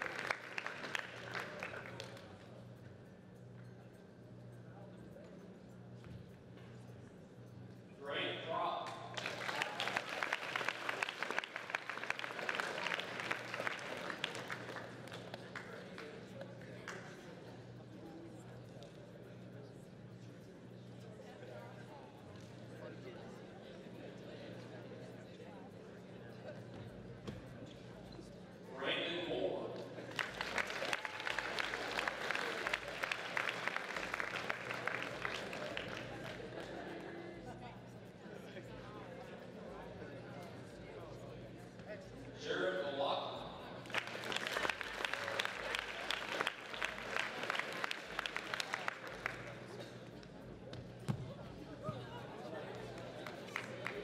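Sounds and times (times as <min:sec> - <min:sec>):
audience applauding: 0:00.0 - 0:02.3, 0:09.1 - 0:16.2, 0:30.1 - 0:36.7, 0:43.8 - 0:49.8, 0:52.7 - 0:54.0.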